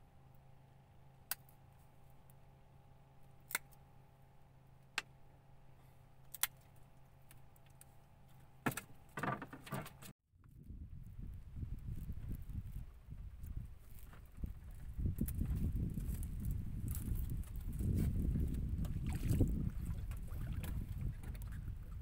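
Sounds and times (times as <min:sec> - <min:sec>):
low steady hum: 0:00.0 - 0:22.0
wind rumble on microphone: 0:10.4 - 0:22.0.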